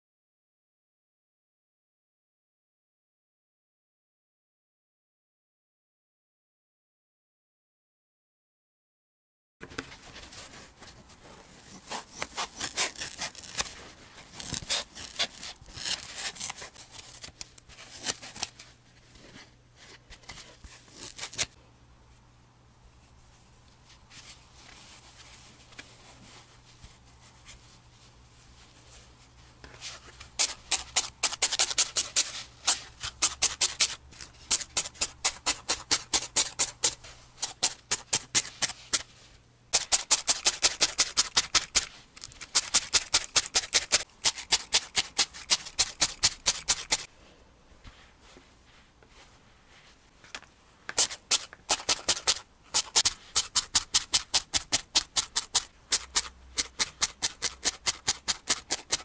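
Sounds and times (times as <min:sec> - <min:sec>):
felting needle stabbing wool: 0:11.7 - 0:17.2, 0:30.3 - 0:39.1, 0:50.9 - 0:59.0.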